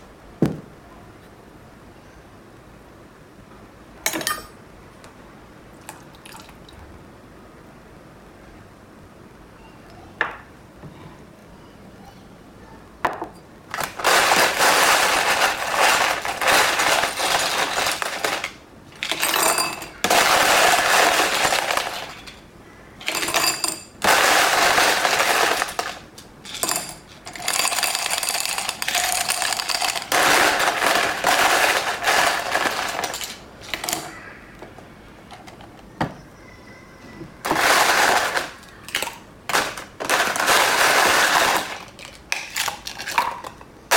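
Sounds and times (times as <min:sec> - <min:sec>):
ice rattling in cocktail shaker: 0:13.8 - 0:22.4, 0:23.0 - 0:34.2, 0:37.4 - 0:43.6.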